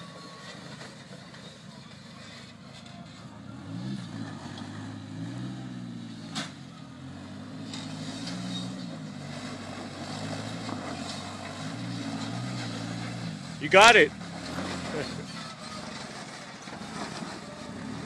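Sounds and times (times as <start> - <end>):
off-road vehicle engine revving: 3.2 - 18.0.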